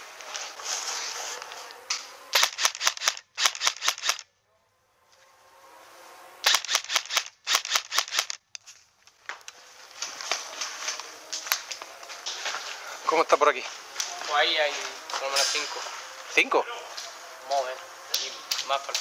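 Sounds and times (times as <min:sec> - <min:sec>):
airsoft rifle shots: 0:02.3 - 0:04.3, 0:06.4 - 0:08.5.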